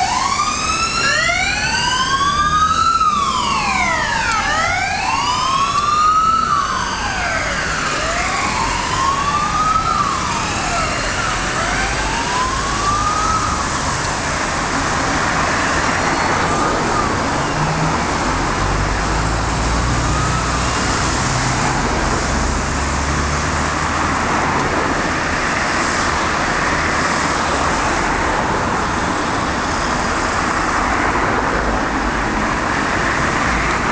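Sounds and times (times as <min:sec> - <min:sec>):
wailing siren: 0:00.0 - 0:23.4
road traffic noise: 0:00.0 - 0:33.9.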